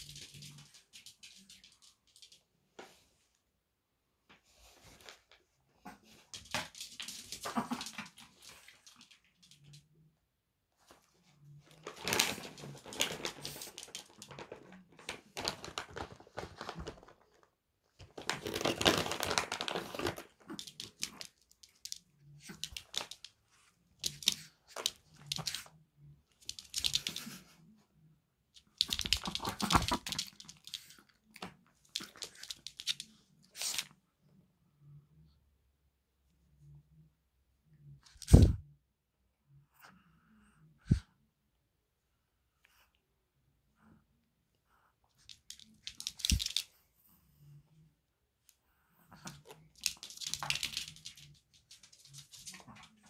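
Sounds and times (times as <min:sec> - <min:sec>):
crinkling and rustling: 0:10.8 - 0:25.7, 0:28.6 - 0:33.9, 0:49.2 - 0:53.0.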